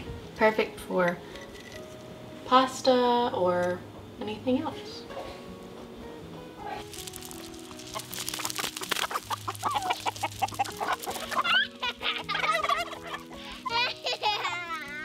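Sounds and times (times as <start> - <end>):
soft background music: 0.0 - 15.0
pecking clicks on gravel: 6.8 - 15.0
chickens clucking and squawking: 6.9 - 15.0.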